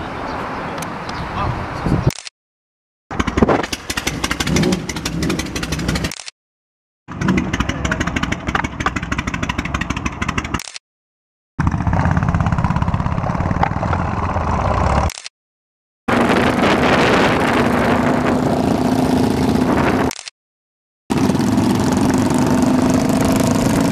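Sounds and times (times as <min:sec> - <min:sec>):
motorcycles pulling away: 0:03.1 - 0:06.1, 0:07.1 - 0:10.6, 0:11.6 - 0:15.1, 0:16.1 - 0:20.1, 0:21.1 - 0:23.9
motorcycle engines idling: 0:03.2 - 0:06.1, 0:07.1 - 0:10.6.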